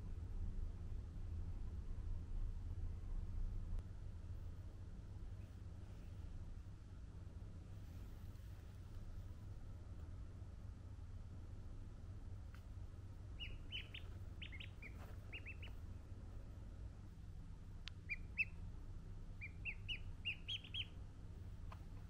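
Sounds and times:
steady low hum: 0.0s - 22.0s
ducklings peeping: 13.2s - 15.9s, 17.9s - 18.6s, 19.4s - 22.0s.

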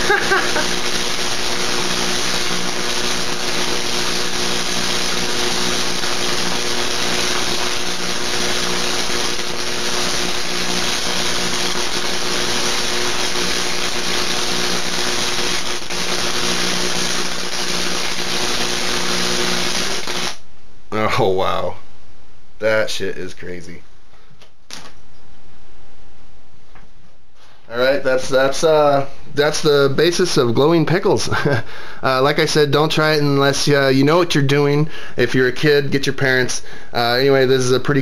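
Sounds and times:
pickles sizzling with electricity: 0.0s - 20.5s
electrical hum: 0.0s - 38.0s.

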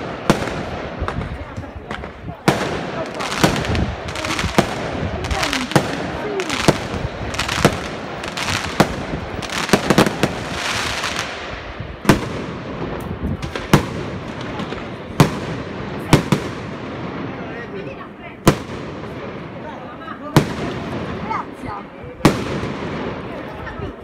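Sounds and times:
firework crackling hiss: 0.0s - 14.6s.

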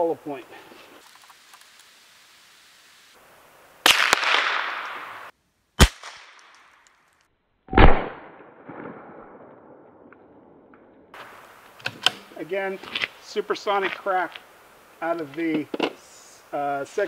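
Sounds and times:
rifle shots: 3.8s - 6.6s, 7.7s - 9.8s.

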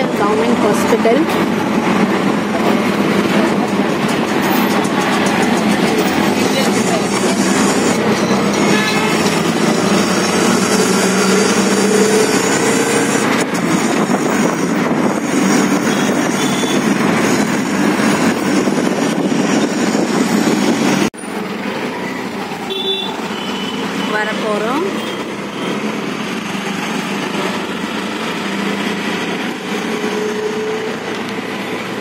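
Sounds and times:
road and traffic noise: 0.0s - 32.0s.

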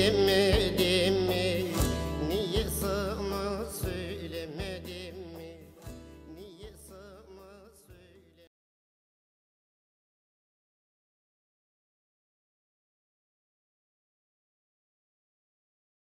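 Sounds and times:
folk song with lute: 0.0s - 8.5s
drum hits: 1.6s - 3.0s.

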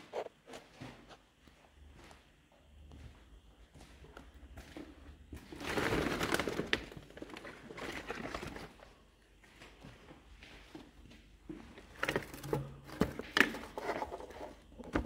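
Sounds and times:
rustling and crinkling: 3.0s - 15.0s.

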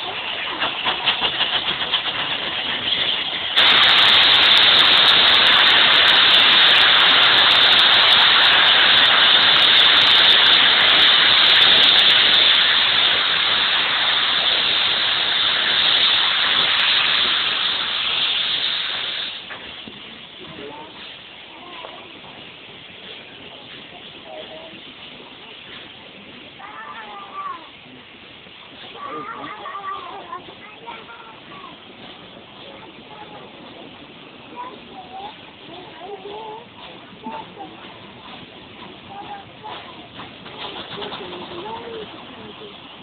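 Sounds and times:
steam locomotive blowing off steam: 0.0s - 43.0s.

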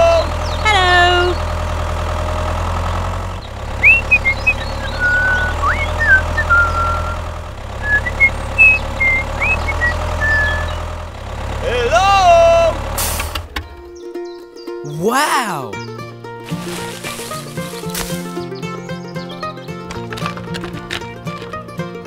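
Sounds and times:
tractor engine chugging: 0.0s - 14.0s
high chirps and whistles: 3.8s - 7.2s, 7.8s - 10.9s.

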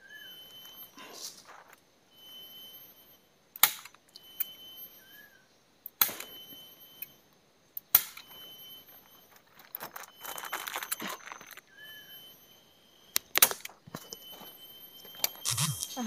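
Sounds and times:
tarp rustling: 9.4s - 11.6s.

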